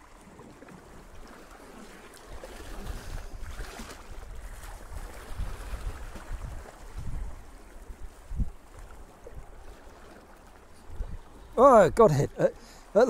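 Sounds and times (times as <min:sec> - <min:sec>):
sea water lapping at rocks: 0:00.0 - 0:13.0
wind gusting on microphone: 0:02.6 - 0:09.7, 0:10.8 - 0:12.3.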